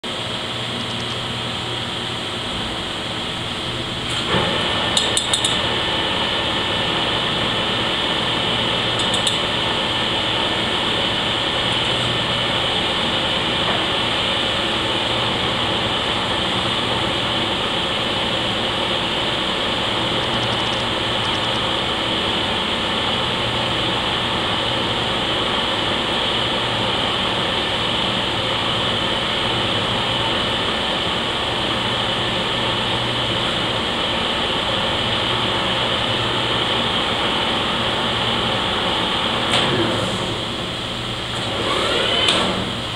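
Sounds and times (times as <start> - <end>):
lathe running: 0.0 - 42.9
sharp metallic clicks: 0.8 - 1.3, 5.0 - 5.6, 9.0 - 9.4.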